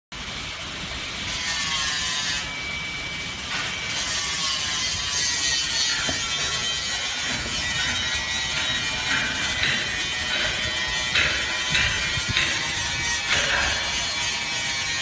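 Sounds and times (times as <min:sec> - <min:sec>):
mixer paddles scraping: 0:03.6 - 0:15.0.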